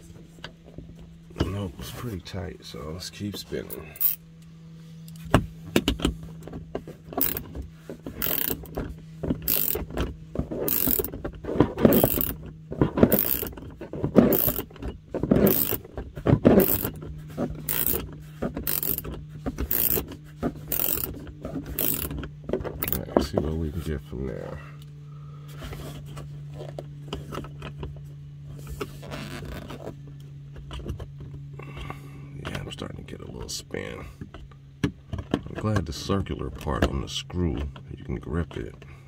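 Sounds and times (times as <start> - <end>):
socket ratchet clicking: 4.0 - 4.2, 7.2 - 7.5, 8.2 - 8.8, 9.4 - 9.8, 10.6 - 11.1, 11.9 - 12.4, 13.1 - 13.6, 14.2 - 14.7, 15.4 - 15.8, 16.6 - 17.0, 17.7 - 18.0, 18.6 - 19.1, 19.7 - 20.0, 20.7 - 21.1, 21.7 - 22.2, 22.8 - 23.0.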